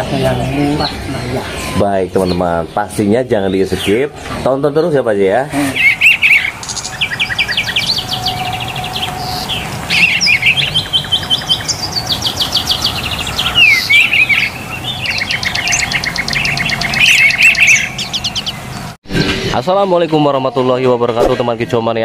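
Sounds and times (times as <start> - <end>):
songbirds trilling: 0.0 - 22.0.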